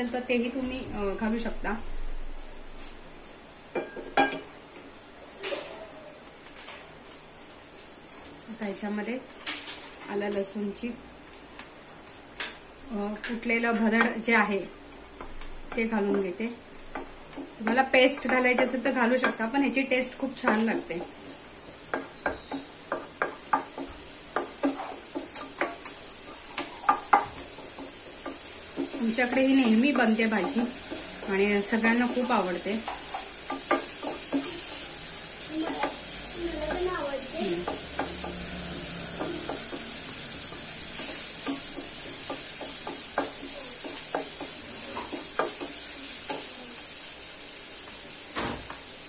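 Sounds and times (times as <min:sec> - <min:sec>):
garlic sizzling in oil: 0:00.0 - 0:49.0
wooden spatula scraping a pan: 0:22.0 - 0:46.5.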